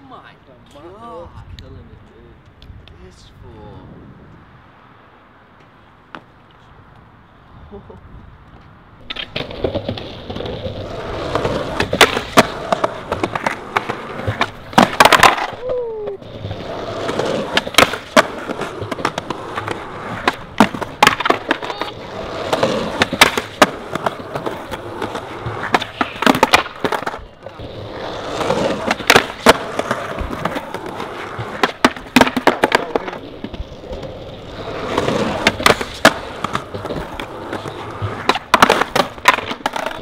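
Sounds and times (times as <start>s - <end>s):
skateboard wheels rolling on concrete: 0.0s - 40.0s
skateboard clacking on concrete ledge: 9.0s - 15.7s, 16.5s - 40.0s.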